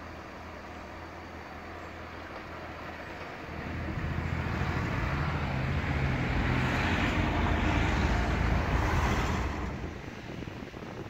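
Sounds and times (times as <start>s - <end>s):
car driving past: 3.4s - 10.2s.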